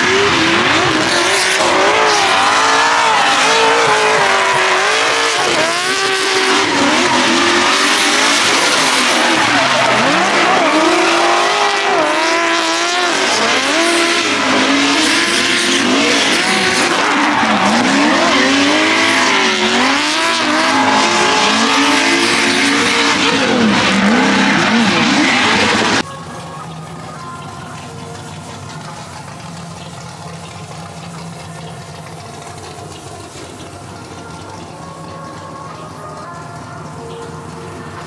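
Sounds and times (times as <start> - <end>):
engine revving: 0.0 - 26.1
tyres squealing: 0.0 - 30.3.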